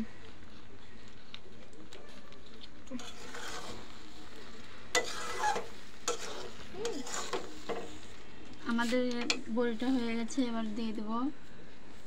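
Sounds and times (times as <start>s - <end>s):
pickle simmering and sizzling: 0.0s - 12.0s
metal spatula scraping pan: 2.9s - 4.2s, 4.9s - 9.5s.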